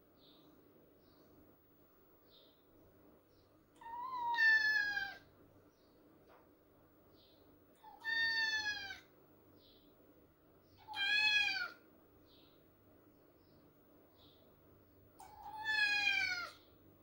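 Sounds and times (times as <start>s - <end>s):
kitten meowing: 3.8s - 5.2s, 7.9s - 9.0s, 10.8s - 11.8s, 15.2s - 16.6s.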